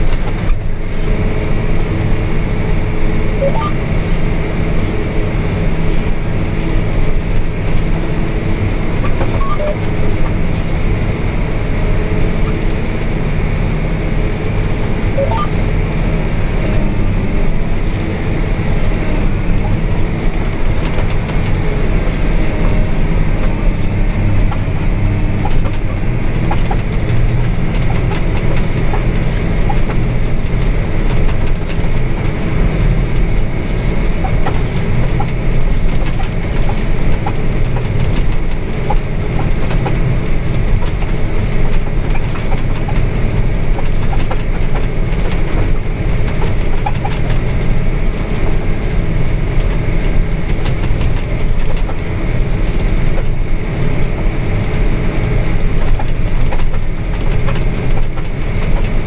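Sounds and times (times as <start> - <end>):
engine rumble: 0.0 - 59.0.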